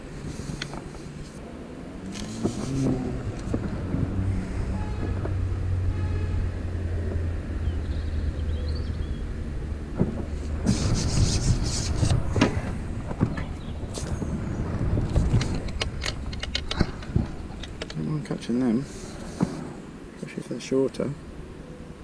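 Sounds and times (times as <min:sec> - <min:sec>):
low engine hum: 0:00.0 - 0:20.2
rustling: 0:02.1 - 0:05.4, 0:09.9 - 0:19.9.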